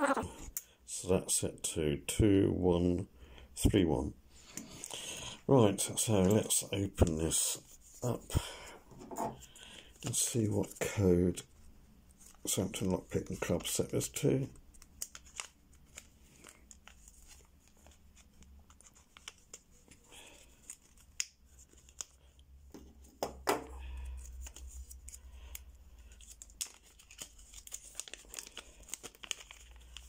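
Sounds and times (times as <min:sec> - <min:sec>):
plastic bag crinkling: 0:26.1 - 0:30.0.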